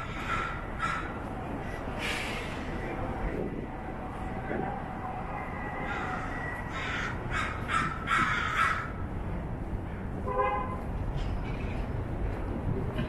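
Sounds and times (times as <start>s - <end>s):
crow cawing: 0.0s - 1.2s, 5.8s - 9.0s
street traffic rumble: 0.0s - 13.0s.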